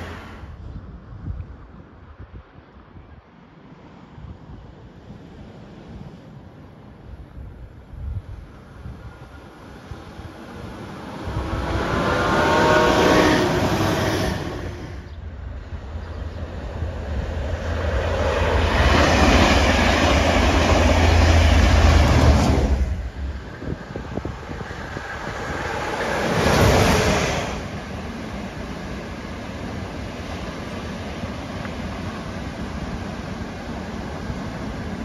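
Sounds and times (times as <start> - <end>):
diesel train passing: 0.0 - 0.6, 5.4 - 35.0
diesel locomotive engine rumble: 7.7 - 35.0.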